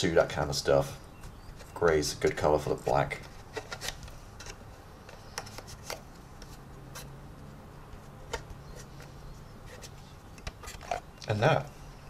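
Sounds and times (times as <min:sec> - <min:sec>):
plastic clicks and rubbing: 0:01.2 - 0:07.1, 0:07.9 - 0:11.4.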